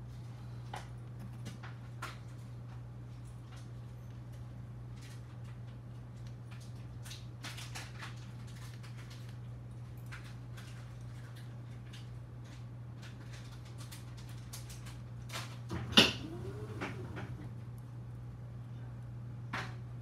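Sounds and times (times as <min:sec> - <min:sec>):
steady low hum: 0:15.7 - 0:20.0.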